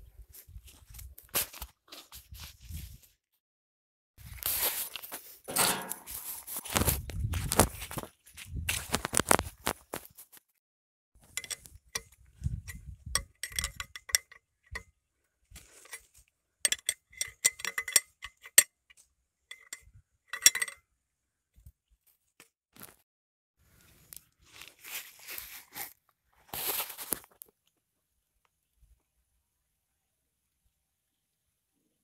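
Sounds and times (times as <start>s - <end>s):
metallic clinks of spanner and bolts: 5.5s - 6.1s, 11.3s - 12.1s, 13.2s - 14.8s, 16.7s - 18.7s, 19.5s - 20.8s.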